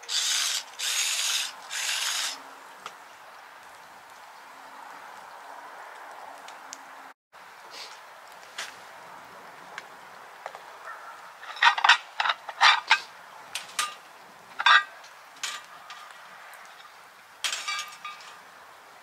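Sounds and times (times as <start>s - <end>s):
skillets clanking on metal grate: 11.4s - 16.1s, 16.7s - 18.4s.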